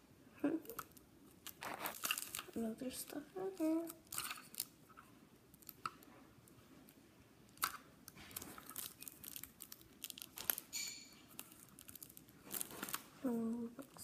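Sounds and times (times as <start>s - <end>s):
packaging crinkling and rustling: 0.8s - 4.8s, 7.6s - 14.0s.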